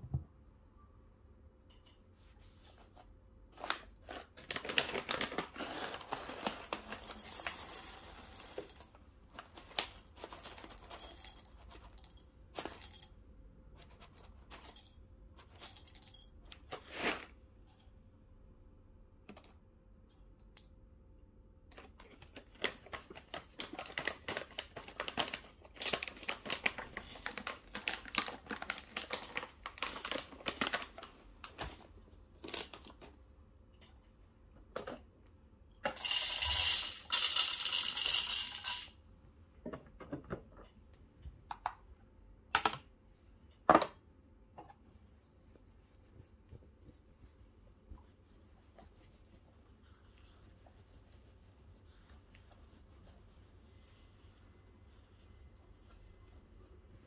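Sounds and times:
bag crinkling: 3.6s - 8.7s, 22.3s - 31.6s
coffee beans clattering into bowl: 5.5s - 8.9s, 35.9s - 39.0s.

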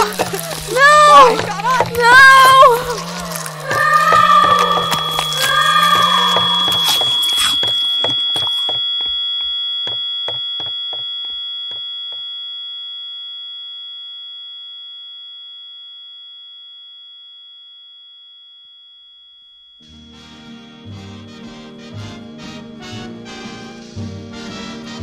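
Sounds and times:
high ringing tone: 0.1s - 20.0s.

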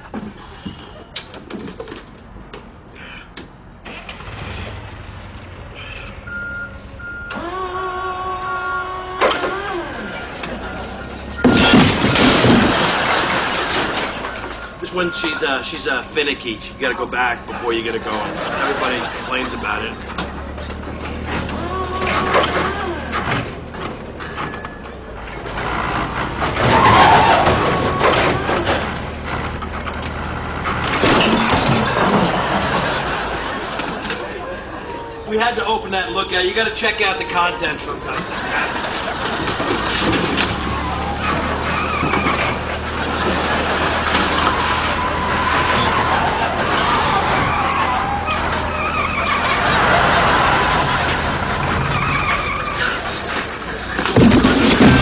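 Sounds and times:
forklift motor whine: 3.8s - 12.3s, 14.2s - 35.3s, 37.1s - 54.4s
forklift reversing beeper: 5.8s - 8.2s, 10.0s - 12.1s, 14.2s - 21.3s, 23.6s - 26.4s.

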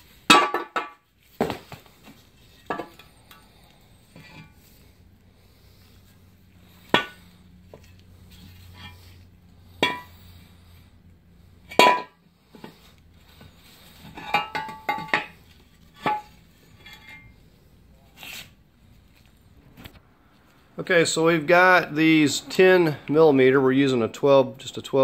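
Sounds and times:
metal clanks and clinks: 9.8s - 10.2s, 11.7s - 12.2s, 14.0s - 17.4s.

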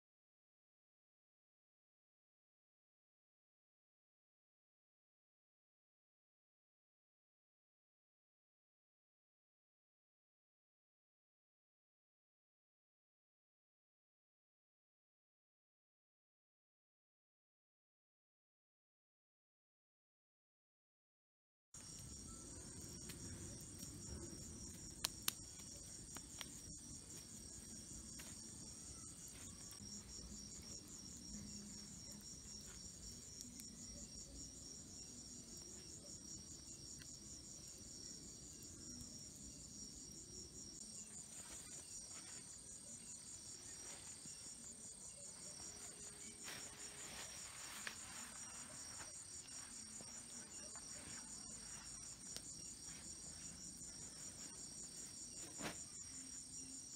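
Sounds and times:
crickets trilling: 21.8s - 56.9s.

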